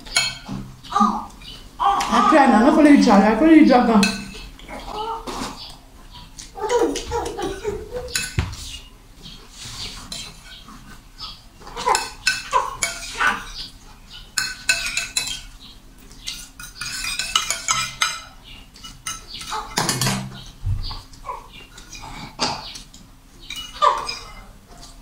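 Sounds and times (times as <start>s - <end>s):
cutlery scraping ceramic plates: 0.0s - 1.6s, 3.9s - 5.7s, 6.7s - 20.6s, 21.8s - 25.0s.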